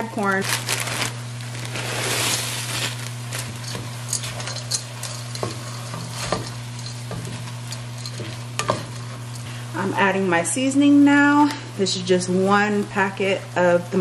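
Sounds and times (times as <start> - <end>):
corn poured into a pot: 0.4 - 3.2
food sizzling in a pot: 0.7 - 10.2
spatula scraping a pot: 1.7 - 9.6.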